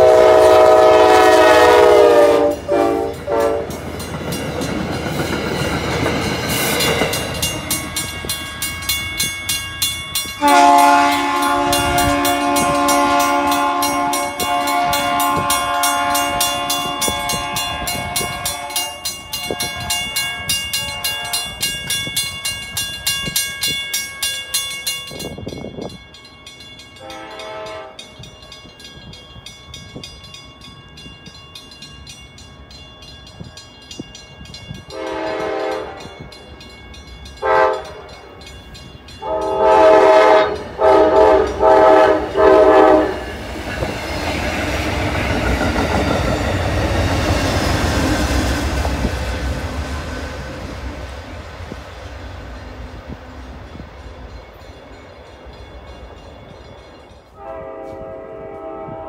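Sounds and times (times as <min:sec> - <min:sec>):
train air horn: 0:00.0 - 0:03.8, 0:10.4 - 0:21.6, 0:27.0 - 0:28.1, 0:34.9 - 0:36.2, 0:37.4 - 0:38.1, 0:39.2 - 0:43.4, 0:57.4 - 0:59.0
train rolling noise: 0:00.0 - 0:59.0.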